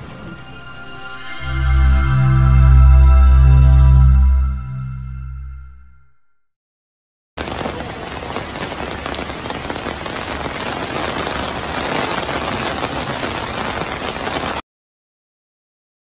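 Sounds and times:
heavy rain on standing water: 0:07.4 - 0:14.6.

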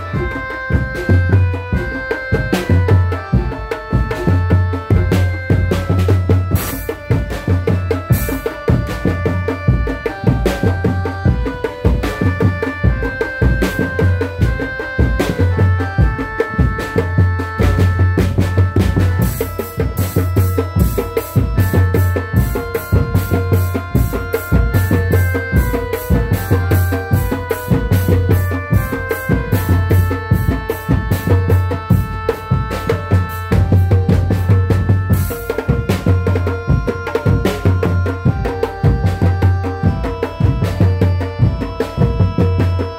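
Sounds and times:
deep drum pattern: 0:00.0 - 0:42.9
fast steady drumming: 0:00.0 - 0:42.9
melody of held notes: 0:00.0 - 0:42.9.

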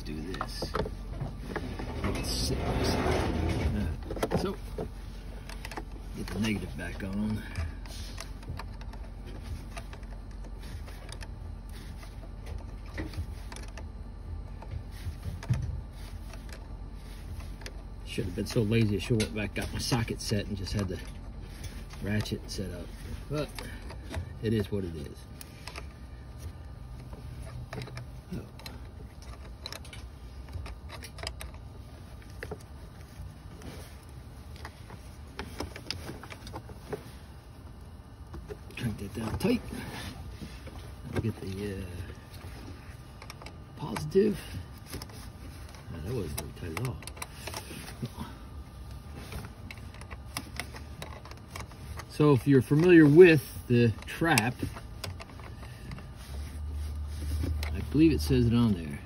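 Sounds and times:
handling noise rumble: 0:00.0 - 0:07.2.

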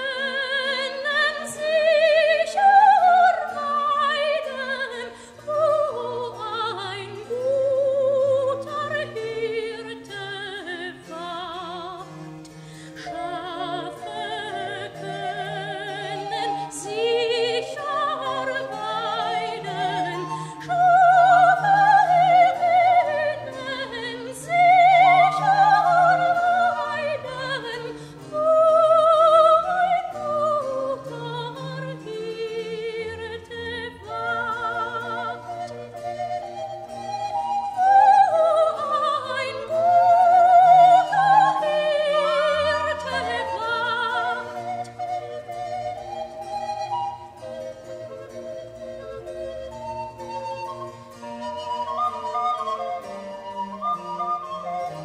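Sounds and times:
singer with wide vibrato: 0:12.9 - 0:36.1, 0:37.5 - 0:45.3.

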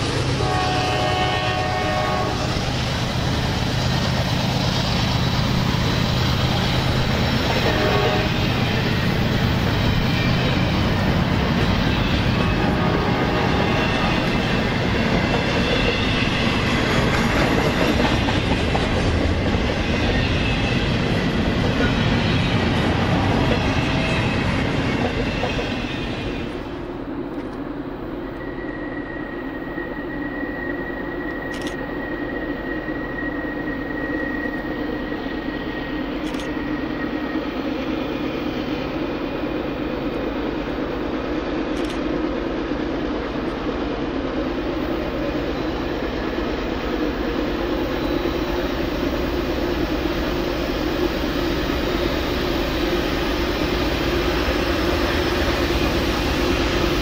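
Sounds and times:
freight train rumbling past: 0:00.0 - 0:57.0
low diesel rumble of train: 0:00.0 - 0:57.0.

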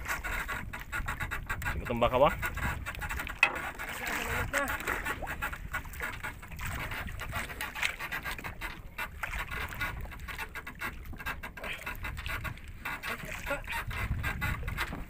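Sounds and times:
water slapping against boat hull: 0:00.0 - 0:15.0
wind buffeting the microphone: 0:00.0 - 0:15.0
clicks and knocks: 0:02.5 - 0:04.2.

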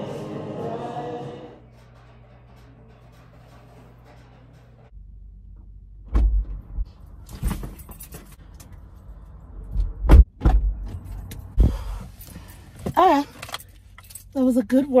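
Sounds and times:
car door opening and shutting: 0:06.0 - 0:08.2.

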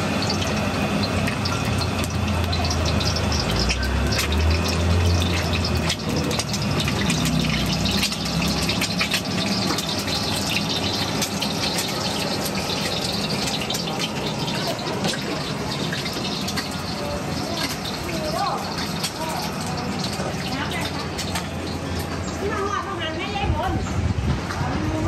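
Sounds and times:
egg sizzling in hot oil: 0:00.0 - 0:22.6.

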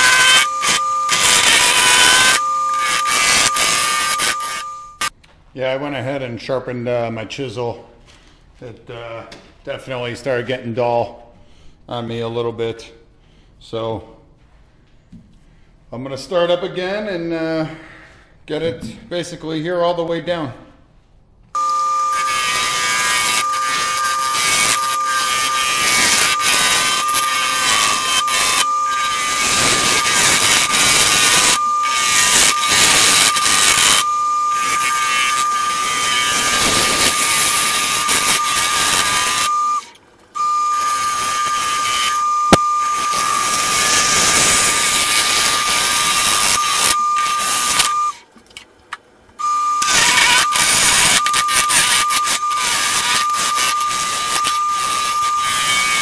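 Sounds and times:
wood lathe whining: 0:00.0 - 0:05.1, 0:21.6 - 0:48.2, 0:49.4 - 0:56.0
chisel cutting wood hissing: 0:21.9 - 0:39.5, 0:40.8 - 0:47.9, 0:49.8 - 0:56.0.

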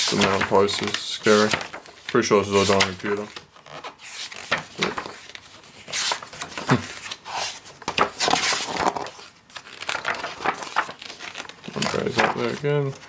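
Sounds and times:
book pages turning: 0:00.0 - 0:13.0
pages tapping as they settle: 0:11.7 - 0:13.0.

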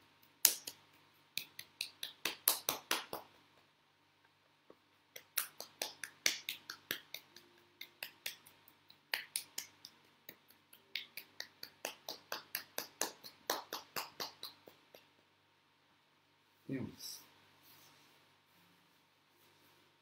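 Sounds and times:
hand slapping bare forearm: 0:00.4 - 0:00.8, 0:01.4 - 0:03.3, 0:05.2 - 0:07.3.

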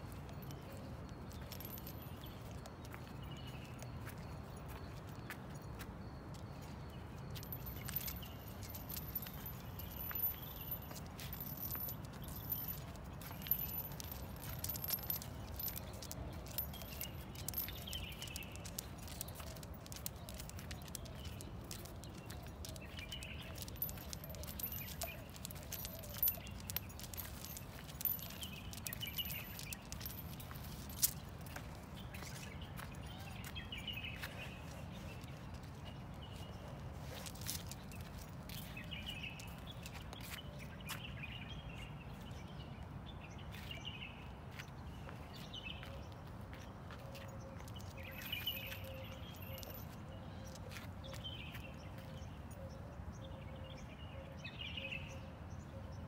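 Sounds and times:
dog leash jingling: 0:00.0 - 0:41.9, 0:45.4 - 0:52.8
small birds chirping: 0:00.0 - 0:56.0.

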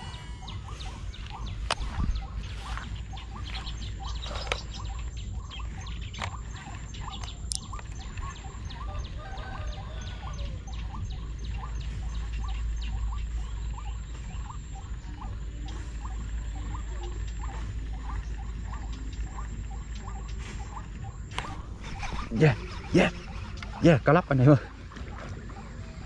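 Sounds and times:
short chirping calls: 0:00.0 - 0:24.8
wind rumble on microphone: 0:00.0 - 0:26.0.

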